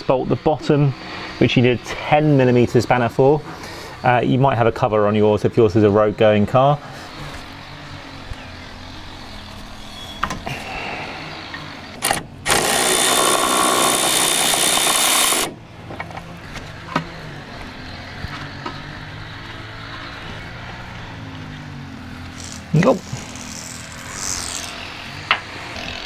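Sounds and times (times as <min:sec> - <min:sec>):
power tool running: 0:00.2 - 0:04.1, 0:07.2 - 0:15.6, 0:22.0 - 0:26.0.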